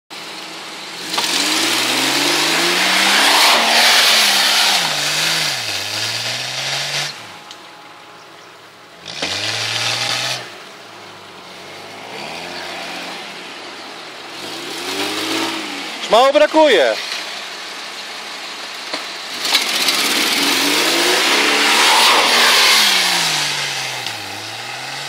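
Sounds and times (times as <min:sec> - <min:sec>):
engine revving hard: 0:01.0 - 0:07.2, 0:09.0 - 0:10.6, 0:11.8 - 0:13.4, 0:14.3 - 0:16.2, 0:19.3 - 0:25.0.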